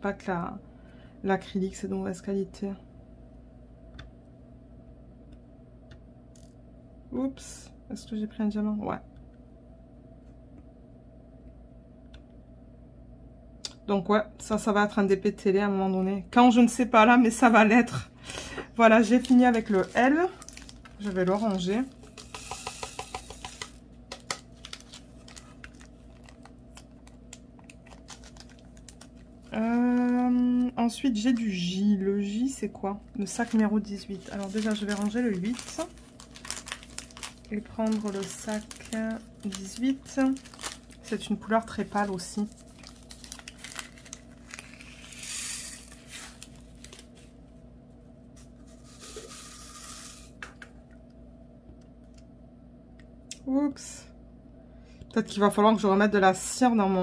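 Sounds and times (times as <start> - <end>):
plastic beads rattling in tray: 19.2 - 26.3, 42.8 - 46.5.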